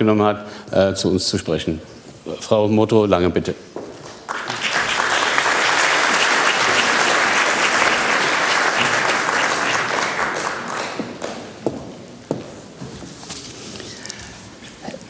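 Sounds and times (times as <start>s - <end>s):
audience applauding: 4.0s - 11.7s.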